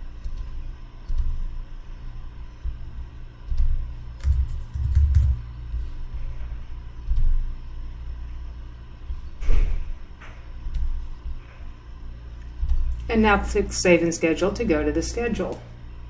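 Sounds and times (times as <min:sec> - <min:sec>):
low thumping rumble: 0:00.0 - 0:14.1
keyboard typing: 0:03.5 - 0:05.4.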